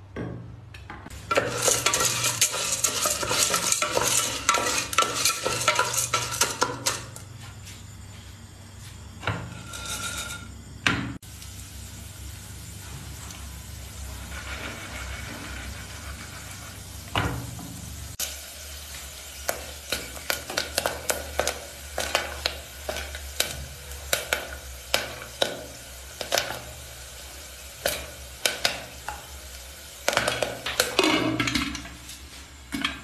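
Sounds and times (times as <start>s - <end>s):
popcorn popping: 1.1s - 7.3s, 16.0s - 31.9s
oil sizzling in a pot: 1.1s - 33.0s.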